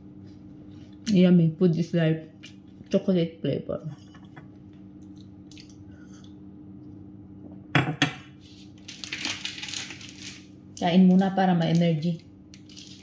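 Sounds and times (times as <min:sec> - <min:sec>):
steady low hum: 0:00.0 - 0:13.0
foil wrapper crinkling: 0:08.5 - 0:13.0.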